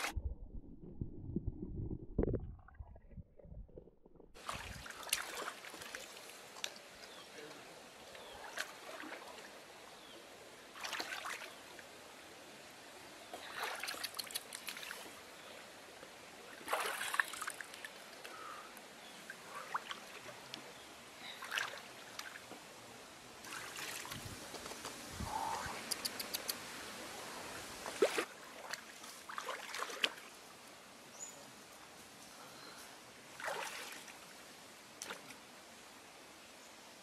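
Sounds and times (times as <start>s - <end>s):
water splashing and trickling: 0.0s - 9.9s, 10.6s - 11.9s, 13.3s - 22.6s, 23.4s - 24.5s, 27.2s - 30.5s, 33.3s - 34.4s.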